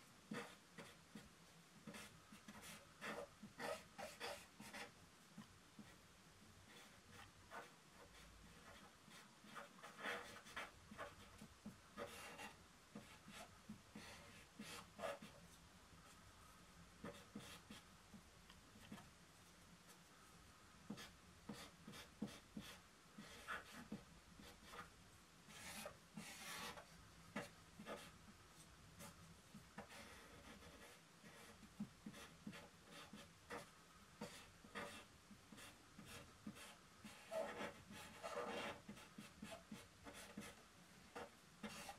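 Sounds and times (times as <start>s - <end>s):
brush strokes on paper: 25.5s - 40.6s.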